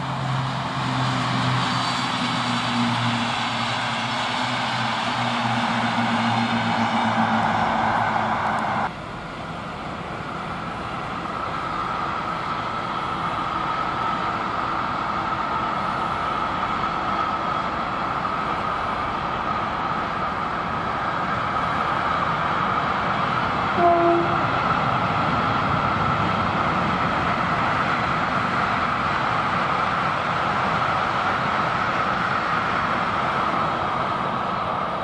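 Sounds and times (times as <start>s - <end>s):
another train passing: 0.0s - 35.0s
freight train passing: 0.0s - 35.0s.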